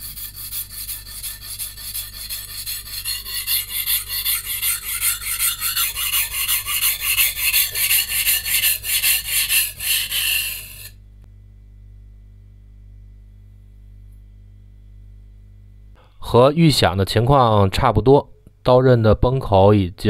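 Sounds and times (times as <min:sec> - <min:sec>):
knife grinding on whetstone: 0:00.0 - 0:10.9
faint low hum: 0:10.9 - 0:19.3.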